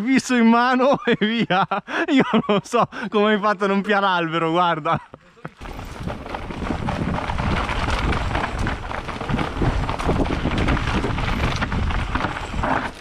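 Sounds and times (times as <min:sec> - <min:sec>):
wind rush on microphone: 0:05.6 - 0:12.8
bike knocks and rattles: 0:05.6 - 0:13.0
bike tyre noise: 0:05.6 - 0:13.0.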